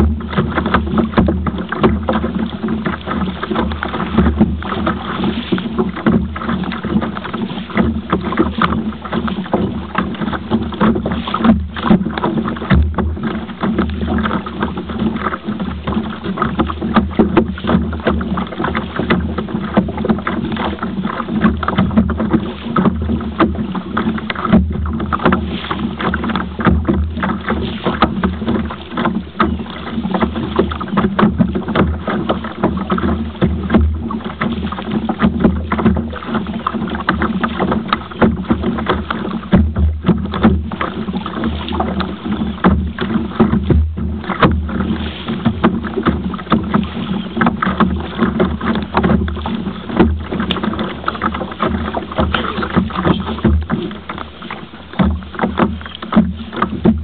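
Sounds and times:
water splashing against kayak hull: 0.0 - 57.0.

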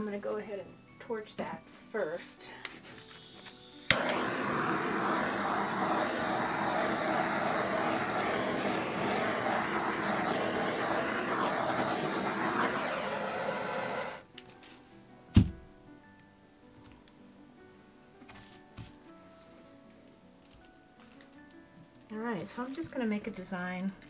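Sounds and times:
butane torch hissing: 2.9 - 14.2
torch lighting click: 3.0 - 14.2.

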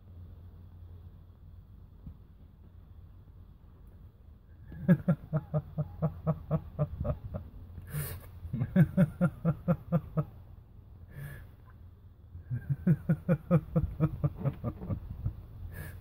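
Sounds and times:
person laughing: 4.6 - 10.4, 12.4 - 15.9.

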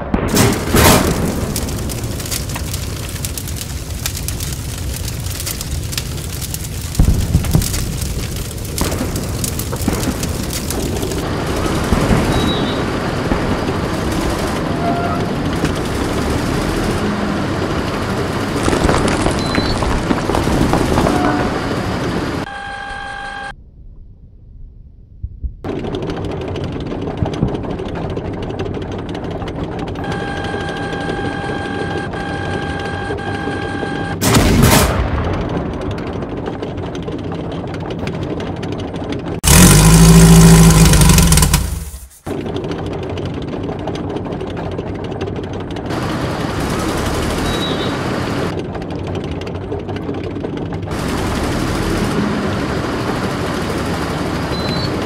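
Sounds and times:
machine-gun fire and gunshots: 0.0 - 2.4, 6.9 - 16.6, 18.5 - 22.5, 34.1 - 36.4
explosion booms: 0.0 - 3.2, 6.9 - 15.3, 18.6 - 22.2, 34.2 - 36.5.

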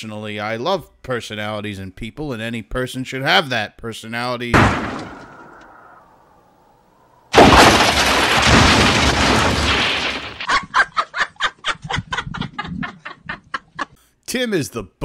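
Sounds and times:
loud crash and explosion: 4.6 - 5.9, 7.3 - 10.5
woman laughing hard: 10.5 - 14.0.

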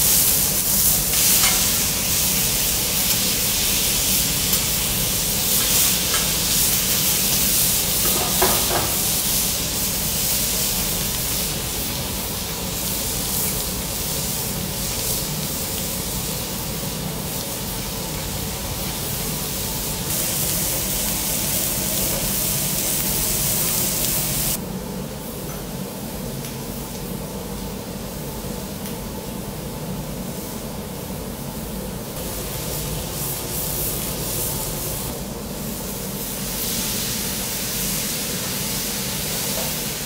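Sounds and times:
steak sizzling on a griddle: 0.0 - 24.6, 35.7 - 40.0.

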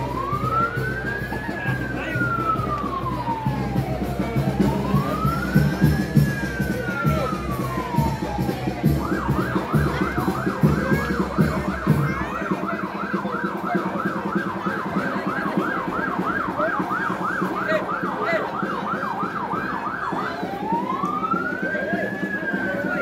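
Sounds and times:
electronic siren: 0.0 - 23.0.

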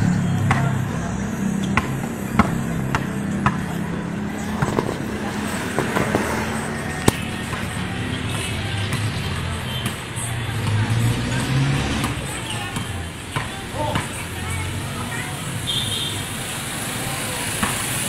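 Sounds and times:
basketball bouncing: 0.4 - 0.8, 1.6 - 5.1, 7.0 - 9.1
sneakers hitting concrete: 1.6 - 9.2, 17.5 - 17.9.

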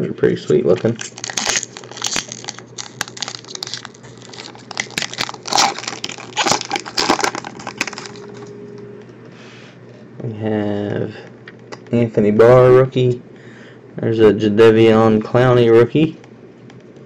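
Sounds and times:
foil wrapper crinkling and tearing: 0.6 - 8.5.

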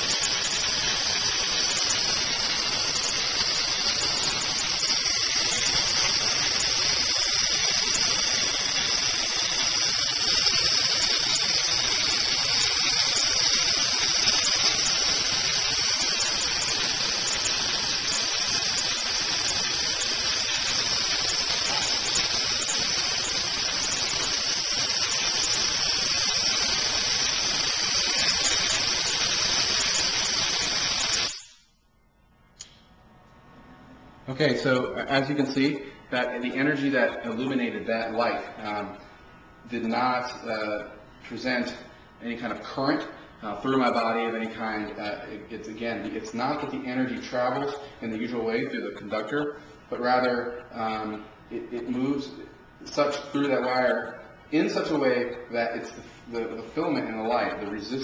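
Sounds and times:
spark gap hissing: 0.0 - 31.8.

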